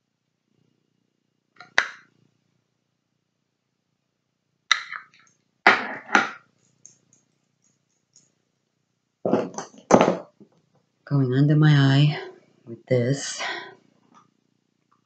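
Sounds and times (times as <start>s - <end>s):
faint small clicks: 6.6s - 8.4s
makeup products clattering down: 9.3s - 10.4s.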